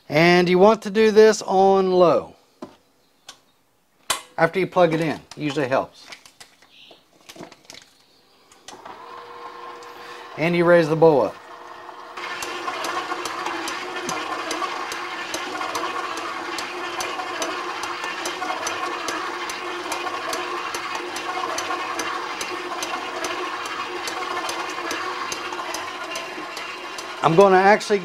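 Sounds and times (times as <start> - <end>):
stand mixer motor humming: 8.7 - 28.0
regular ticking: 12.2 - 28.0.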